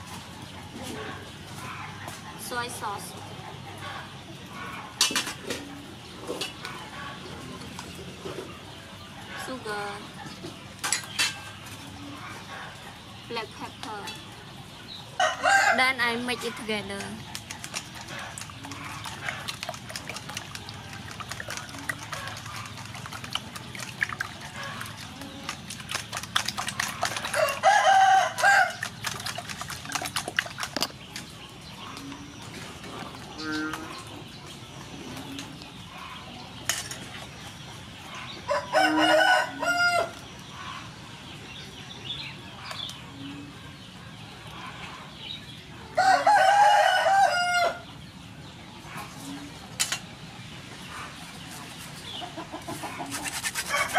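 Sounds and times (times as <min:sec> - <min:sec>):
rooster crowing: 0:15.2 - 0:15.8, 0:27.3 - 0:28.8, 0:38.5 - 0:40.2, 0:46.0 - 0:47.8.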